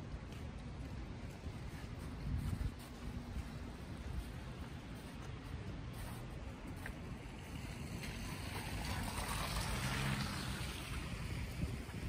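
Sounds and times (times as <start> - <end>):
city traffic rumble: 0.0 - 12.0
tyres hissing through wet slush: 7.3 - 12.0.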